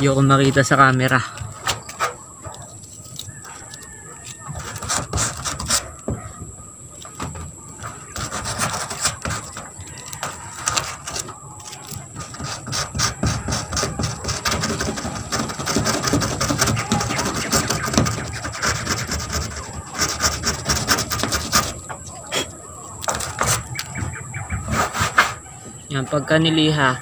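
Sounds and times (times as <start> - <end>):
sandpaper scraping metal: 0.0 - 6.4, 7.0 - 25.7.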